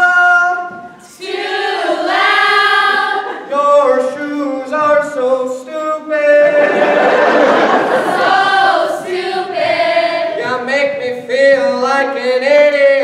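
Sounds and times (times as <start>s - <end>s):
group singing a cappella: 1.0s - 5.6s, 6.4s - 13.0s.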